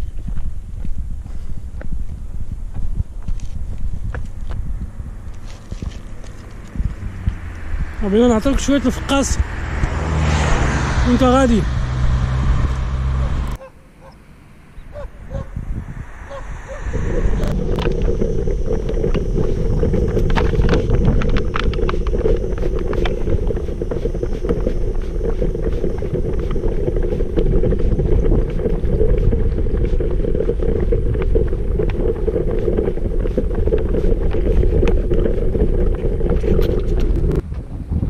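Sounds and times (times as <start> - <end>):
stroller wheels rumbling on asphalt: 0.0 - 14.2, 14.8 - 38.0
wind buffeting microphone: 0.0 - 38.0.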